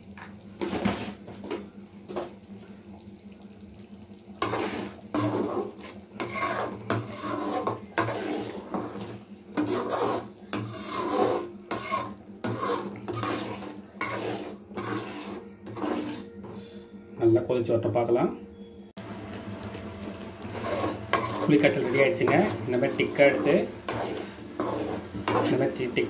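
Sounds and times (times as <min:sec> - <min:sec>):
metal ladle scraping a pot: 0:04.4 - 0:16.8, 0:20.4 - 0:26.0.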